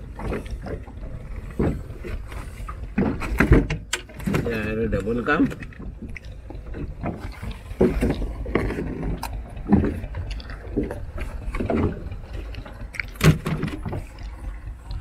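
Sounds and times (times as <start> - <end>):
boat engine rumble: 0.0 - 15.0
men talking: 4.3 - 5.6.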